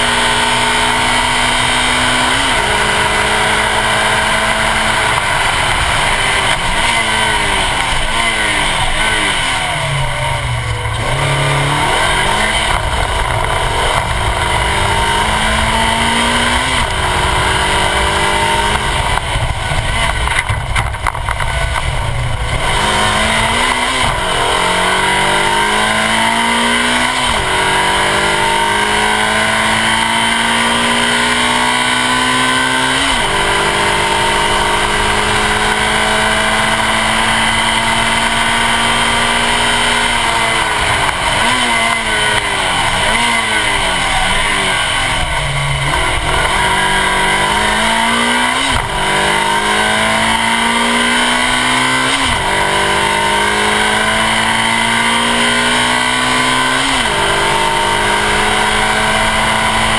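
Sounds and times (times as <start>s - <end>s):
car engine under full throttle: 0.0s - 59.9s
wind and road noise: 0.0s - 59.9s.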